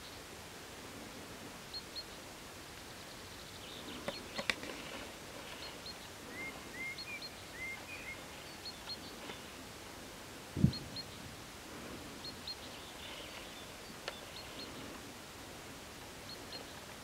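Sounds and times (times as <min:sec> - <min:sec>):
steady hiss: 0:00.0 - 0:17.0
small birds chirping: 0:01.1 - 0:15.4, 0:16.0 - 0:17.0
sharp clicks: 0:04.0 - 0:04.8.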